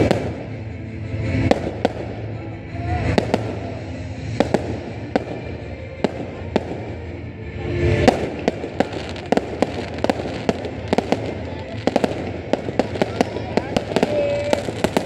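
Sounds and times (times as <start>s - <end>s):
firework shells bursting: 8.1s - 15.0s.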